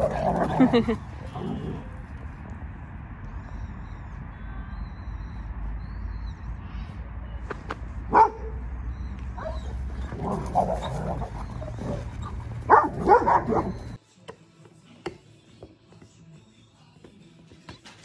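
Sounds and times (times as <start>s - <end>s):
dogs barking and yipping: 0.0s - 1.8s, 8.1s - 14.0s.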